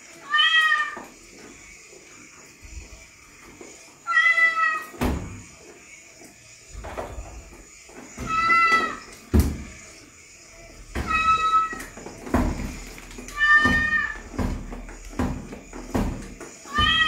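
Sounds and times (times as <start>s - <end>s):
cat meowing: 0.2s - 1.0s, 4.0s - 4.9s, 8.3s - 9.0s, 11.0s - 11.8s, 13.3s - 14.2s, 16.7s - 17.0s.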